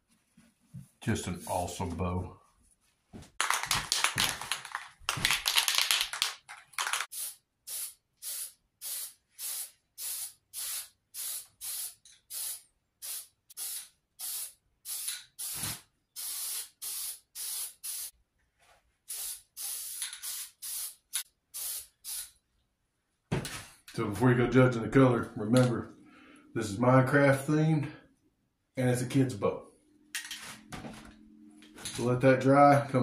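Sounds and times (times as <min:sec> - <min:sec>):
spray paint hissing in puffs: 0:07.1 - 0:18.1, 0:19.1 - 0:22.4.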